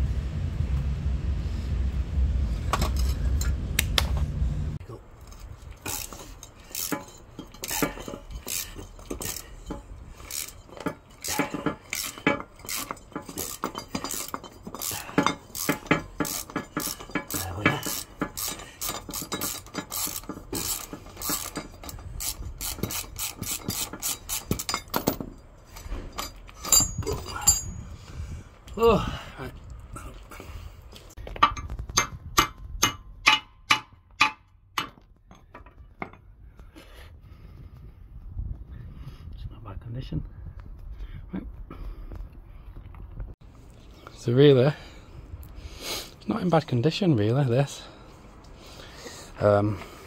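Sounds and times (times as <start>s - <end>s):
steady low hum: 0.0s - 39.4s
ratchet clicks and clanks: 5.2s - 27.7s, 31.2s - 36.2s.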